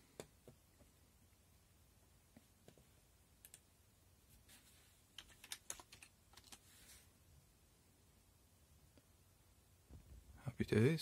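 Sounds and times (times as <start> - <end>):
computer keyboard keystrokes: 5.2 - 6.6.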